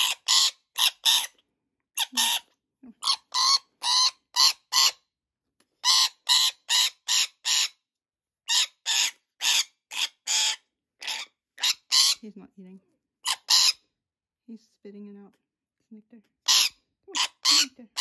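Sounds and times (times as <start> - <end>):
parrot screeching harshly: 0.0 - 1.4, 2.0 - 5.0, 5.8 - 7.8, 8.5 - 12.2, 13.2 - 13.9, 16.4 - 18.0.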